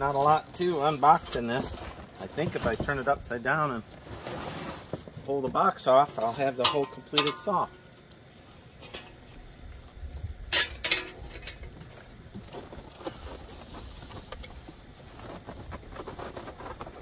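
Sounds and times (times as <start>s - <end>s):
cardboard and foam rustling: 0.0s - 6.6s, 11.8s - 17.0s
cardboard scraping: 0.1s - 5.4s, 12.4s - 17.0s.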